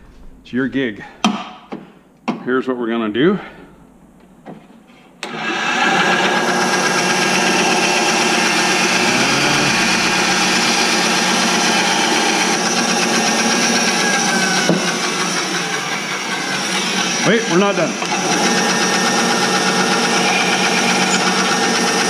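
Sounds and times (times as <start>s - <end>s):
bandsaw cutting plastic pipe: 6.9s - 22.0s.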